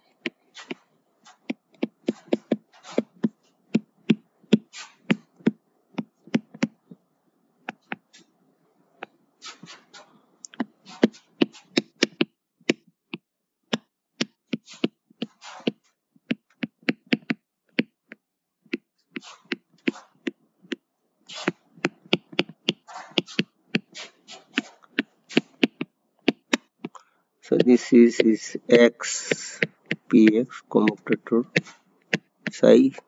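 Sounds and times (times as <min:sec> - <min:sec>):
stylus tapping on tablet: 0:00.1 - 0:07.0, 0:07.6 - 0:08.1, 0:10.5 - 0:20.8, 0:21.4 - 0:27.0, 0:29.1 - 0:32.7
stylus scratchy strokes: 0:00.5 - 0:03.6, 0:04.6 - 0:05.5, 0:09.4 - 0:10.1, 0:14.6 - 0:15.7, 0:19.2 - 0:20.2, 0:21.3 - 0:21.6, 0:22.4 - 0:25.8, 0:27.5 - 0:33.0.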